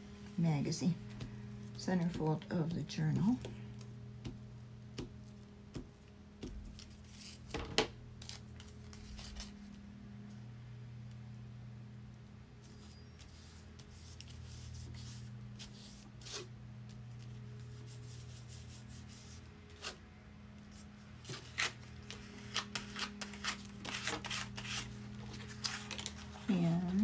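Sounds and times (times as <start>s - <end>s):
faint steady low hum: 0.0s - 27.0s
paper rustling and rubbing: 6.6s - 7.5s, 8.2s - 9.8s, 12.6s - 16.5s, 20.6s - 27.0s.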